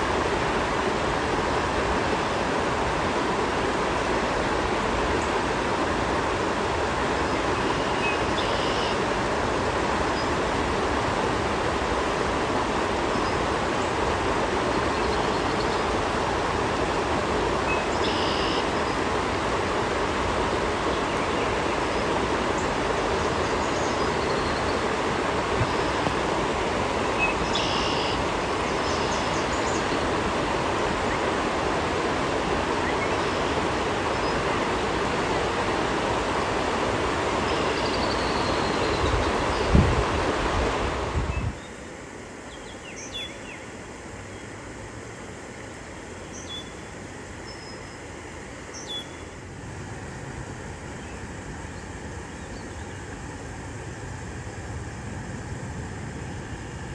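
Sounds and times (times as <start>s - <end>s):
river running over rocks: 0.0s - 41.3s.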